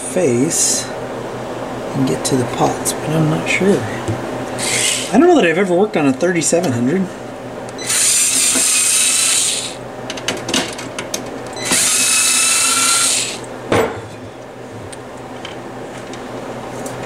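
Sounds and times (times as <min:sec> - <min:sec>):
electric screwdriver whine: 0:07.8 - 0:09.8, 0:11.6 - 0:13.4.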